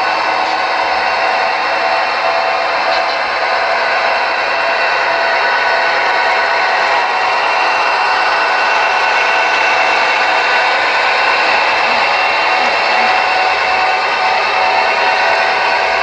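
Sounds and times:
model train motors whirring: 0:00.0 - 0:16.0.

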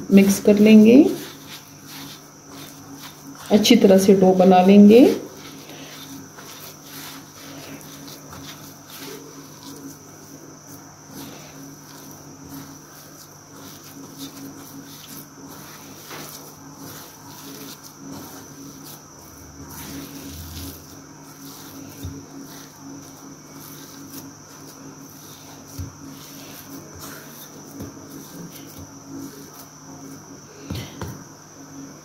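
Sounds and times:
fingers rubbing dough on a plate: 0:00.1 - 0:31.1
high-pitched whine: 0:19.2 - 0:22.6.

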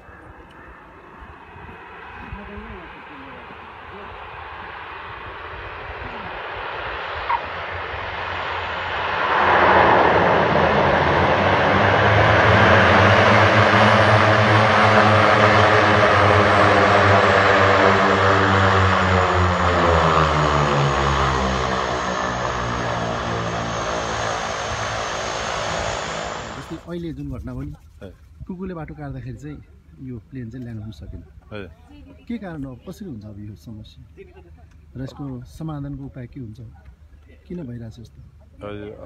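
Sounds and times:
high turbine whine: 0:00.0 - 0:27.0
propeller and engine drone: 0:00.0 - 0:39.0.

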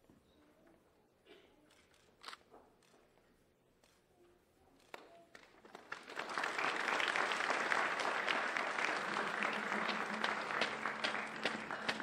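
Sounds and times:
congregation applauding: 0:05.6 - 0:12.0.

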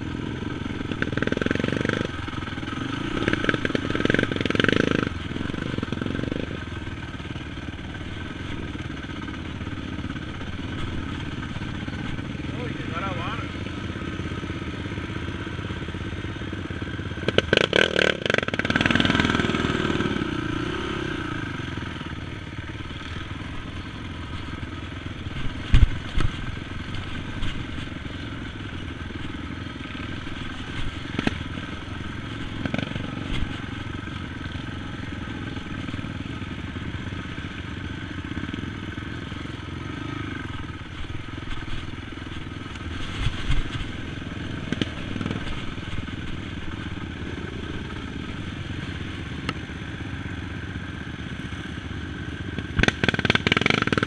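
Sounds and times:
quad engine running: 0:00.0 - 0:54.0
knocks and thuds on bumpy ground: 0:25.3 - 0:28.0.

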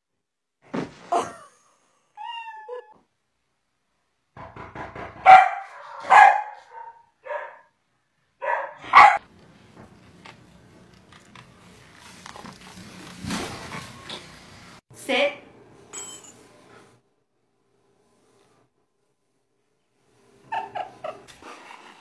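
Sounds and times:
dog barking: 0:05.2 - 0:07.7, 0:08.4 - 0:09.2
dog yelping: 0:08.4 - 0:09.2.

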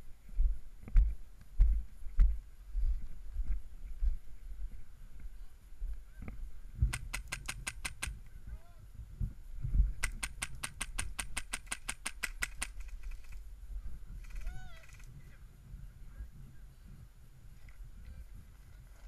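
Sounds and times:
airsoft gun full-auto bursts: 0:06.9 - 0:08.1, 0:10.0 - 0:13.4.

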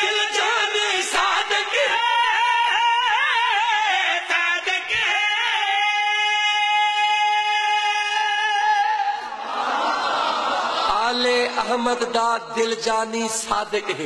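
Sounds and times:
men singing wordless melody: 0:00.0 - 0:09.3.

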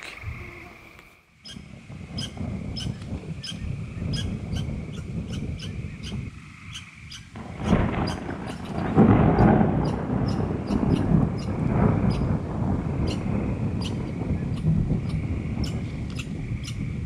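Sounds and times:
wind rumble on microphone: 0:00.0 - 0:17.0.

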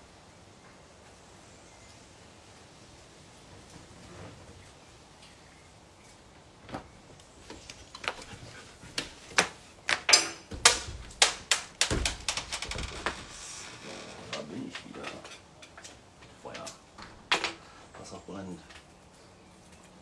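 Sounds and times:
sharp knocks and clatters: 0:07.5 - 0:17.6
heavy thumps: 0:08.2 - 0:14.5.

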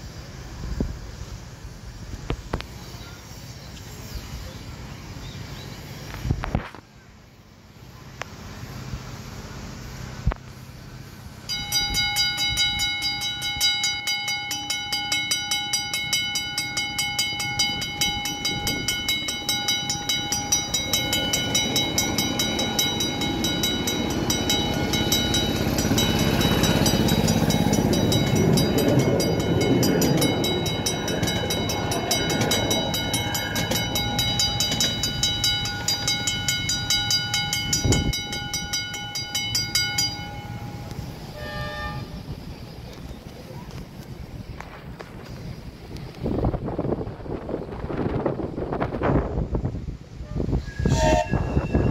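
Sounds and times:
rail vehicle rumbling past: 0:00.0 - 0:51.9
level crossing warning bell: 0:11.4 - 0:42.2.

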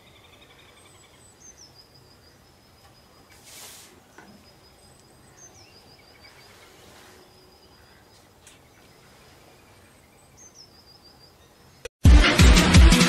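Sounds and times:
songbird chirping: 0:00.0 - 0:11.9
light rain hiss: 0:02.9 - 0:10.4.

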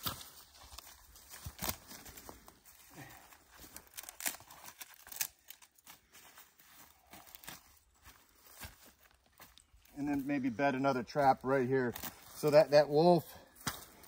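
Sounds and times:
rustling of dry twigs: 0:00.0 - 0:10.3
sticks knocking and cracking: 0:13.6 - 0:14.0.

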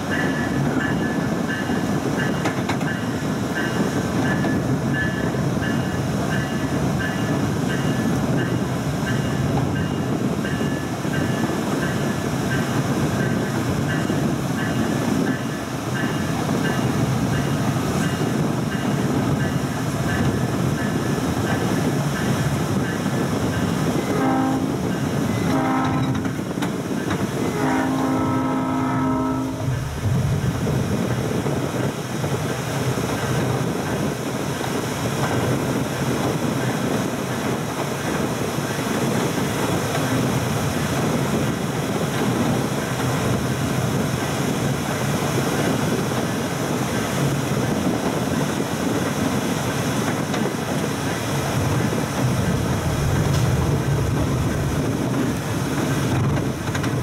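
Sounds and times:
electric train rumbling on rails: 0:00.0 - 0:57.0
train horn blasts: 0:23.9 - 0:26.4, 0:27.3 - 0:29.9.

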